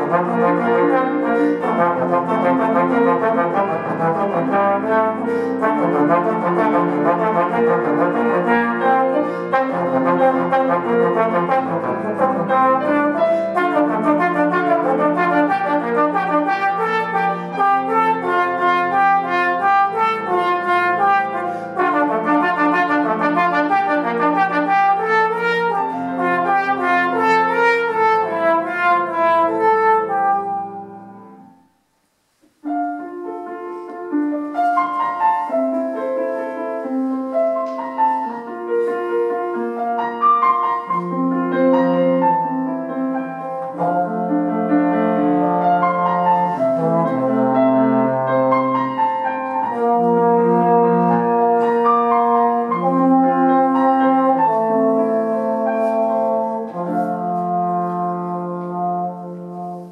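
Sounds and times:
trombone solo: 0.0s - 31.1s, 43.8s - 49.0s, 49.6s - 59.9s
grand piano: 0.0s - 59.9s.

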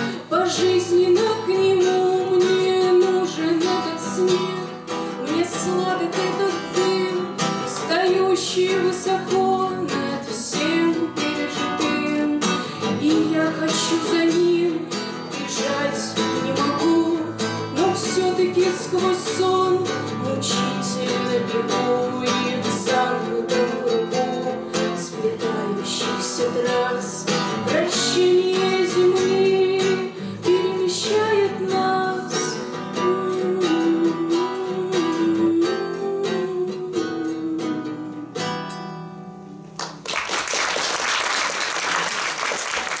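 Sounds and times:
woman singing: 0.0s - 39.1s
acoustic guitar strumming: 0.0s - 39.9s
audience applause: 39.8s - 43.0s.

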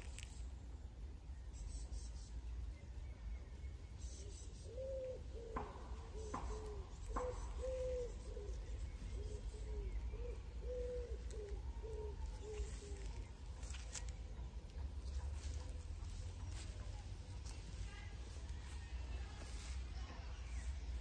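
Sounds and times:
pigeon cooing: 4.6s - 13.3s.

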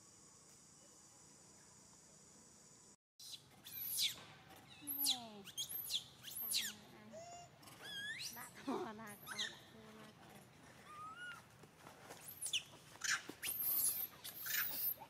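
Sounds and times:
monkey high-pitched squeals: 3.2s - 4.2s, 4.8s - 8.5s, 9.2s - 9.7s, 10.8s - 11.4s, 12.2s - 15.0s.

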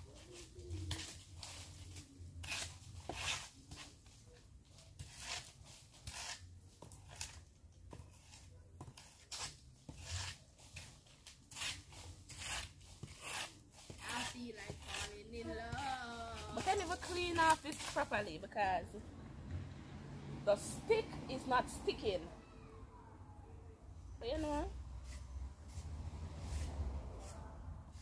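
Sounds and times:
stick scraping through dry leaves: 0.0s - 4.2s, 4.8s - 7.5s, 8.1s - 18.6s.

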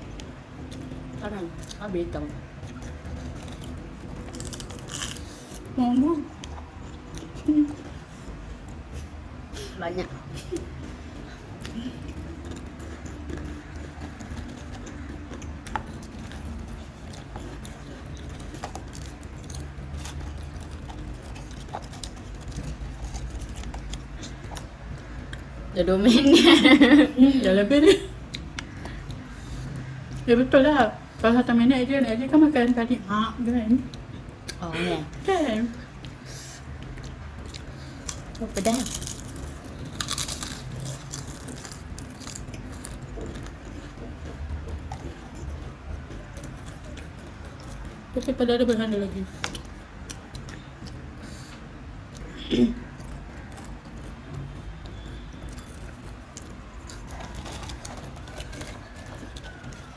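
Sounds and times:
low steady hum: 0.0s - 59.9s
crisps crunched and chewed: 2.7s - 5.7s, 11.6s - 25.5s, 36.8s - 43.9s, 54.9s - 59.9s
crisps crunching: 3.2s - 5.6s, 37.0s - 43.8s, 55.5s - 59.9s.

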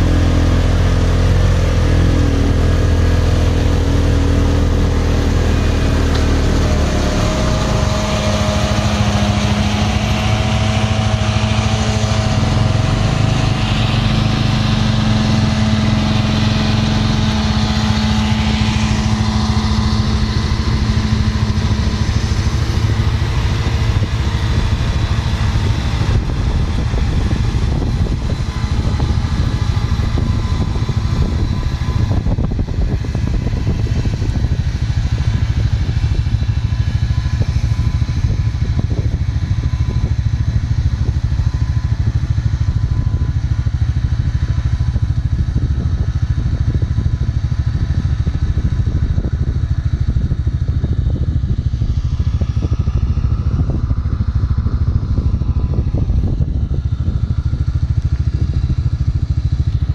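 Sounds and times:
disc mowers cutting grass: 0.0s - 40.0s
tractor diesel engine running: 0.0s - 59.9s.

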